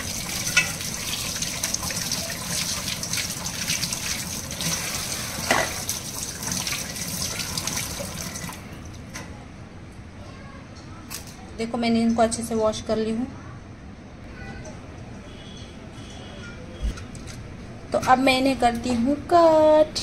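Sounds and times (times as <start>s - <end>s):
kitchen tap running into sink: 0.0s - 8.9s.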